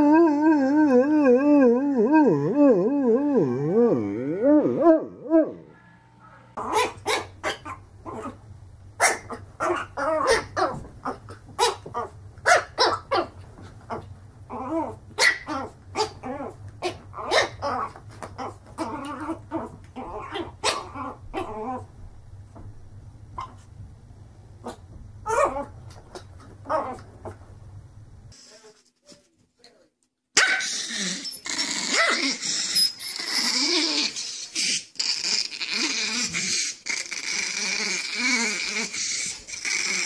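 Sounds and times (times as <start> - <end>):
large dog howling: 0.0 - 5.8.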